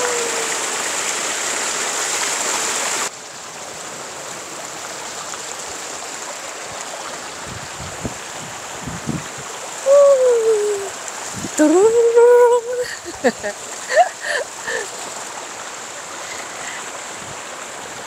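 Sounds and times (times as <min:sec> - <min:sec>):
person calling out: 0:00.0 - 0:00.6, 0:09.8 - 0:11.0, 0:11.6 - 0:13.2
stream rushing over rocks: 0:00.0 - 0:18.0.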